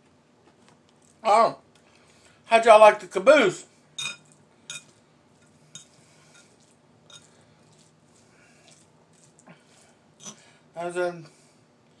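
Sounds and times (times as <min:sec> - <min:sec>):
fork clinking against bowl: 0:04.0 - 0:04.9, 0:05.7 - 0:07.3.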